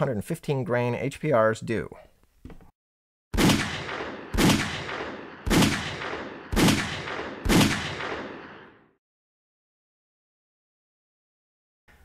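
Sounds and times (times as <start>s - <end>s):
pistol shots: 3.4s - 8.8s.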